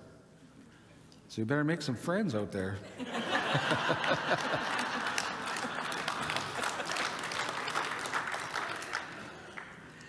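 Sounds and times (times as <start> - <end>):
audience laughing: 2.9 - 7.6
audience applauding: 3.5 - 10.0.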